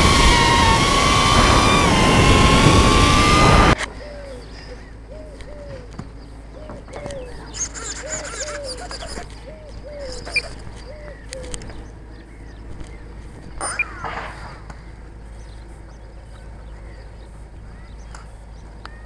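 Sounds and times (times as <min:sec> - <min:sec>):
small birds chirping: 0:00.0 - 0:19.0
dove cooing: 0:03.6 - 0:11.8.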